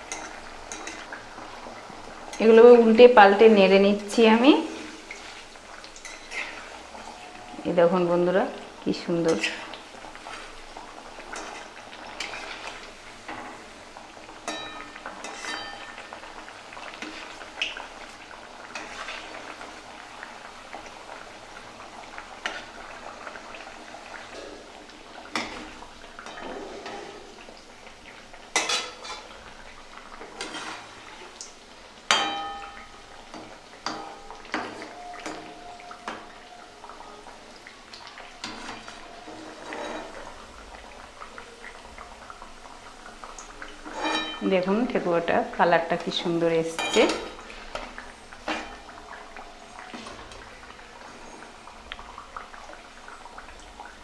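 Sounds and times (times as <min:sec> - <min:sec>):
food sizzling in hot oil: 0:00.0 - 0:54.0
spatula clinking against pan: 0:14.5 - 0:16.0, 0:32.1 - 0:32.8.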